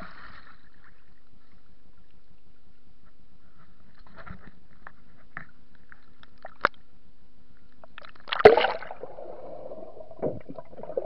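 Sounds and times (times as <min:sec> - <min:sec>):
underwater sloshing and gurgling: 0:00.0 - 0:11.0
water surge splash: 0:08.3 - 0:11.0.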